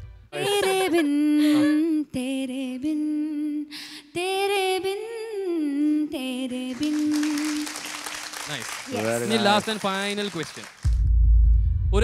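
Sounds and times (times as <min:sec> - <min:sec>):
woman singing unaccompanied: 0:00.4 - 0:07.9.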